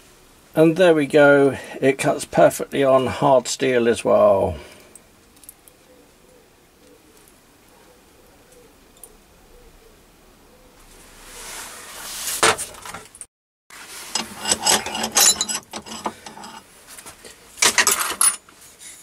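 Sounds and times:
rustle: 0:00.0 - 0:19.0
metal parts clinking: 0:14.1 - 0:16.6, 0:17.6 - 0:18.5.

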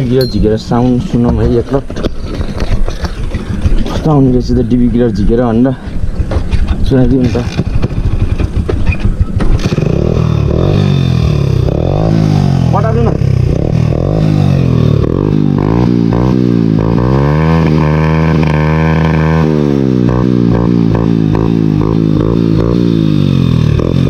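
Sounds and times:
motorcycle engine revving: 0:06.1 - 0:24.0.

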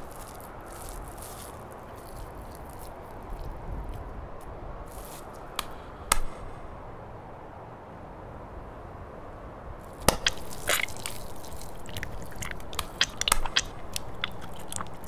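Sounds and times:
sharp wet pop: 0:05.6 - 0:06.4, 0:10.0 - 0:15.0.

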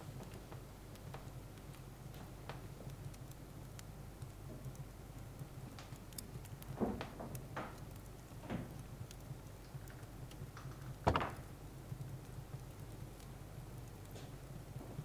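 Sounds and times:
knocks on wooden piano case: 0:11.0 - 0:11.4.

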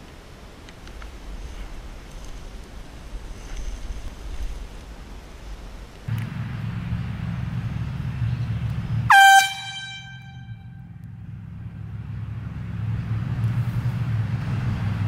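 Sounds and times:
air horn blast: 0:09.1 - 0:10.9.

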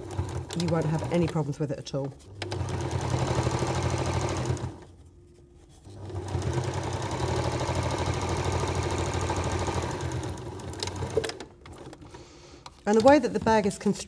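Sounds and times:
electric sewing machine stitching: 0:00.0 - 0:01.5, 0:02.3 - 0:04.9, 0:05.9 - 0:12.0.

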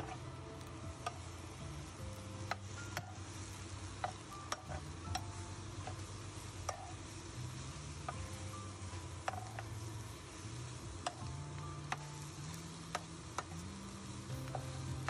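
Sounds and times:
metal spatula scraping wok: 0:00.0 - 0:00.3, 0:02.5 - 0:05.2, 0:05.8 - 0:08.2, 0:08.8 - 0:11.2
vegetables sizzling: 0:00.0 - 0:15.0.

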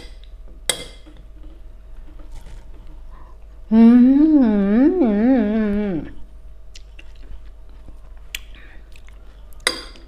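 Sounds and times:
woman humming mmm: 0:03.6 - 0:06.3.

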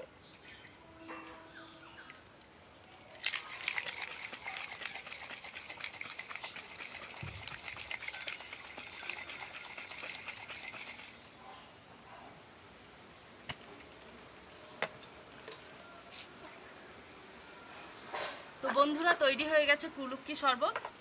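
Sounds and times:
drink sloshing and ice rattling: 0:03.0 - 0:11.2.

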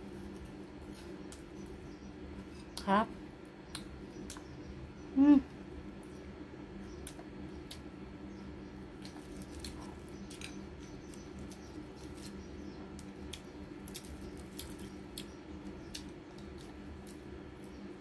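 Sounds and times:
steady low hum: 0:00.0 - 0:18.0
crunchy food being chewed: 0:06.9 - 0:08.1, 0:08.7 - 0:18.0.

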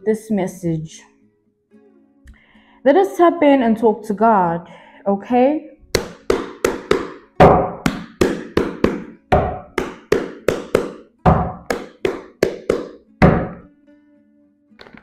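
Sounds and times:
card deck knocking thunks: 0:06.0 - 0:13.6.

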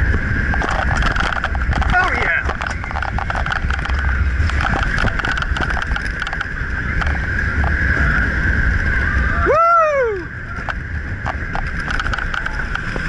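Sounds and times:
rattling clicks of coaster train: 0:00.0 - 0:08.9, 0:10.4 - 0:13.0
wheels whining on steel track: 0:00.0 - 0:13.0
wind buffeting microphone: 0:00.0 - 0:13.0.

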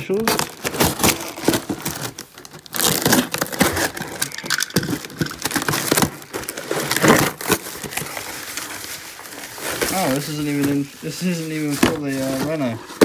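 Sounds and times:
bubble wrap crackling: 0:00.0 - 0:13.0
cardboard box being opened: 0:00.2 - 0:13.0.

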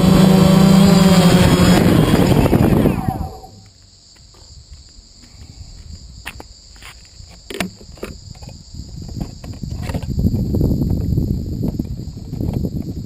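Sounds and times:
low rumbling noise: 0:00.0 - 0:03.7
high-pitched insect drone: 0:00.0 - 0:04.6.

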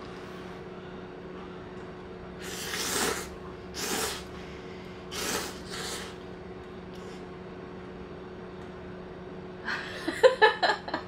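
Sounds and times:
steady low hum: 0:00.0 - 0:11.0
person slurping noodles: 0:02.4 - 0:04.3, 0:05.1 - 0:06.2.

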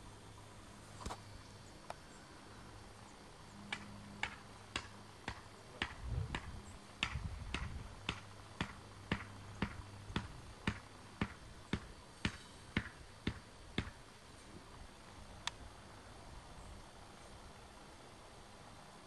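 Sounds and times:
regular sharp ticking: 0:03.7 - 0:14.1.

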